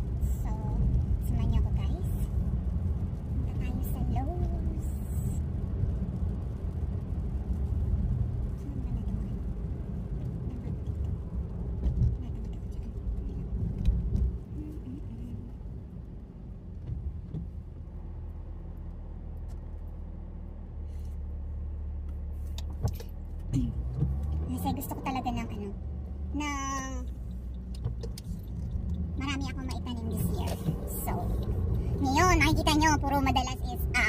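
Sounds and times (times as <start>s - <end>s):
car engine and road noise: 0.0s - 34.0s.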